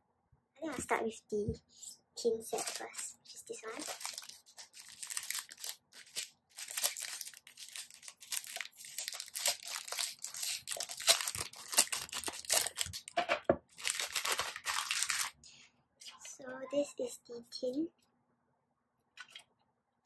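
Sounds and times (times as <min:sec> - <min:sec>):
plastic bag crinkling: 0:02.5 - 0:15.4.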